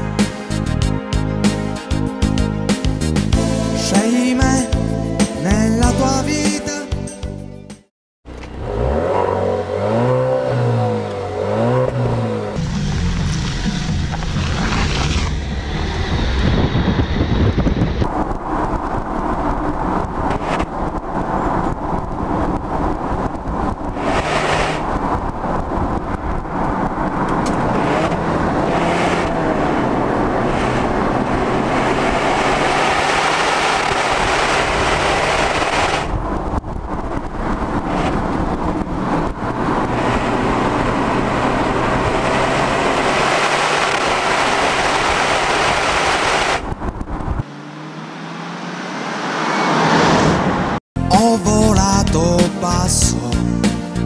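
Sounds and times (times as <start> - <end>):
tyre roar on road: 8.2 - 50.8
car engine running: 10.9 - 49.8
wind on microphone: 14.8 - 43.2, 44.8 - 47.4.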